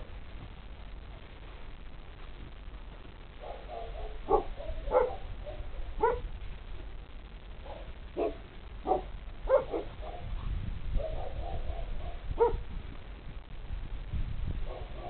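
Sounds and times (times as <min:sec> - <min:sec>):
puppies barking: 0:03.4 - 0:06.2, 0:07.7 - 0:10.3.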